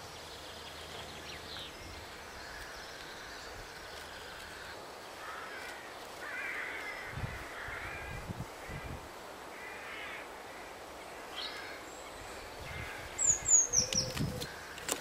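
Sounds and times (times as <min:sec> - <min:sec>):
small birds calling: 0:00.0 - 0:15.0
crow cawing: 0:04.2 - 0:08.9, 0:09.5 - 0:10.8.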